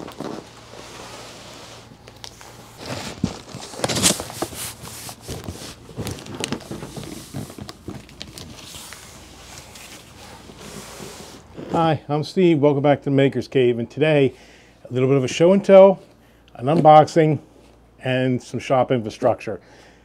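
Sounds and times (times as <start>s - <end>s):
cardboard box rustling and bumping: 2.8s - 8.8s.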